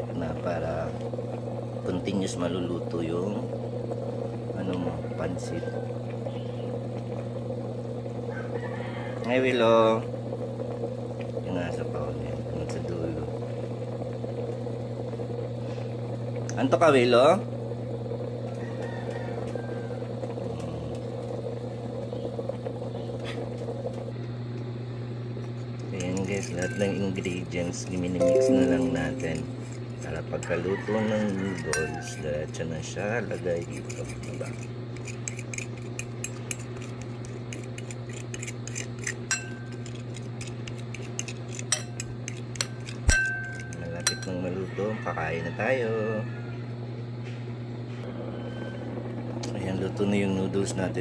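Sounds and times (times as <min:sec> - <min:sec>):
kettle water boiling: 0:00.0 - 0:24.0
fork scraping in ceramic bowl: 0:33.6 - 0:43.9.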